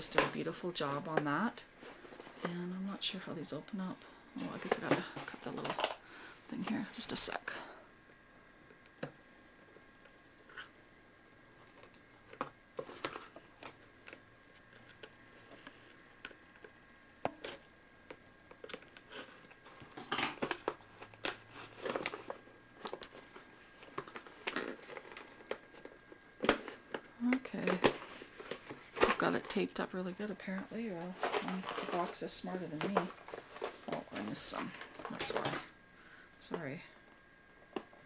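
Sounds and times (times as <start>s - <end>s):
box crinkling and rustling: 4.4s - 6.0s, 18.5s - 29.6s, 30.9s - 35.7s.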